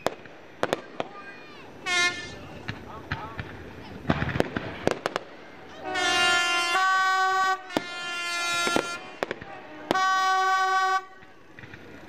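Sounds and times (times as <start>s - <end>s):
fireworks bursting: 0.0s - 12.0s
horn blasts: 1.8s - 2.5s, 5.7s - 11.5s.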